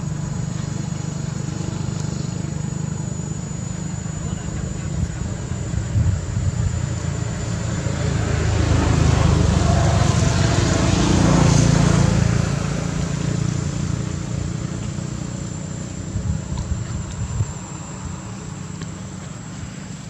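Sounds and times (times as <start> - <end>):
steady low rumble: 0.0 - 20.0
motor vehicle passing: 4.2 - 20.0.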